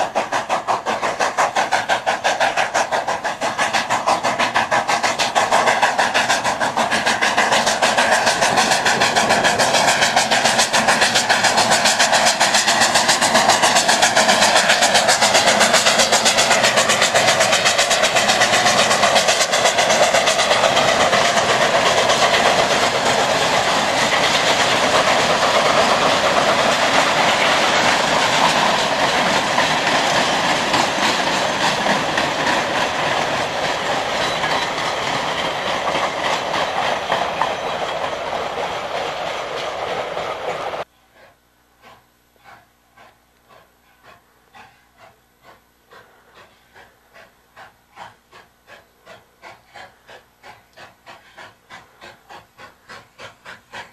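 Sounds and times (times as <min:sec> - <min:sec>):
train wheels clattering over rail joints: 0:00.0 - 0:40.9.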